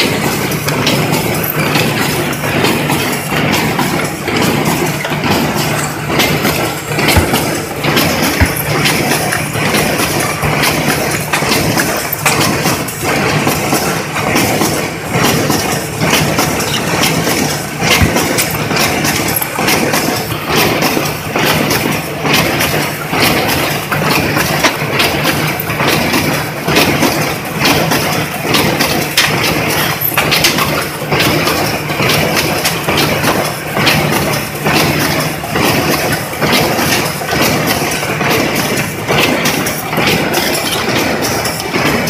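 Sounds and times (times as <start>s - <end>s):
machine humming: 0.0s - 22.0s
machine clacks: 0.0s - 42.0s.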